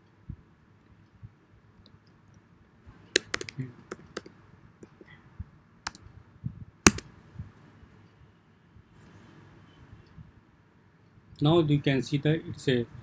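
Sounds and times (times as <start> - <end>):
keyboard key clicks: 3.2 - 5.0.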